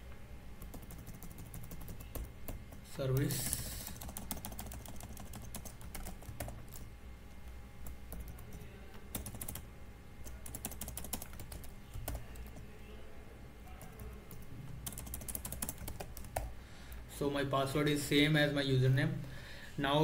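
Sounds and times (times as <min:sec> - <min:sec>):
keyboard typing: 0:00.6 - 0:06.9, 0:07.8 - 0:12.6, 0:13.8 - 0:16.5.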